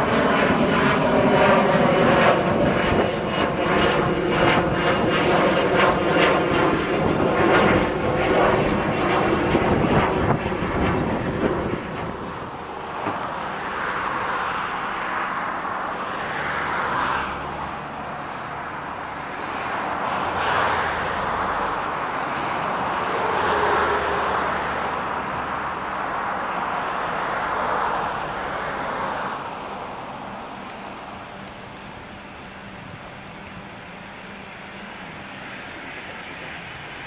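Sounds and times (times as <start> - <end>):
vehicles passing on road: 0.0 - 37.0.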